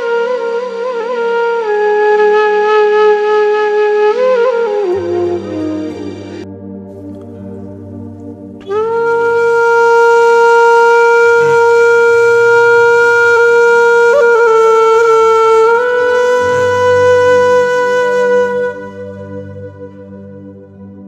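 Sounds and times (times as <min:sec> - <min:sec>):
flute-like long note: 0:00.0 - 0:21.0
low steady drone: 0:04.8 - 0:21.0.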